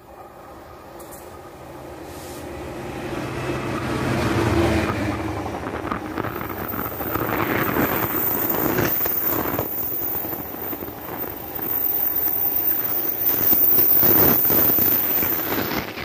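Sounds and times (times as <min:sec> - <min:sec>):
diesel locomotive engine drone: 0:00.0 - 0:16.0
train wheels clattering on rails: 0:03.7 - 0:16.0.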